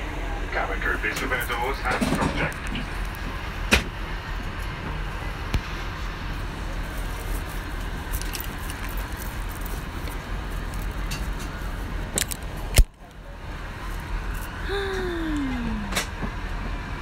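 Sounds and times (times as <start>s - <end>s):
airliner cabin rumble: 0.0s - 17.0s
handling clicks and knocks: 8.1s - 11.5s.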